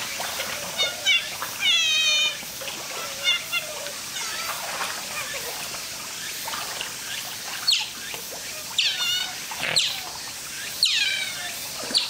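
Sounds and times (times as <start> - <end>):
otters chirping: 7.1 - 12.0.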